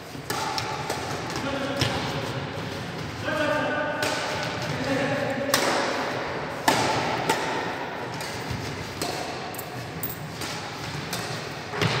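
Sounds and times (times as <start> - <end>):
racket hitting shuttlecock: 0.0 - 12.0.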